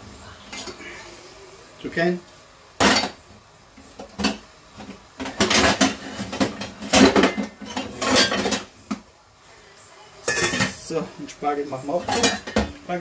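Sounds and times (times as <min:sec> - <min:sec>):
metal pots clattering: 0:02.8 - 0:03.2, 0:03.9 - 0:08.8, 0:10.2 - 0:11.0, 0:11.9 - 0:12.8.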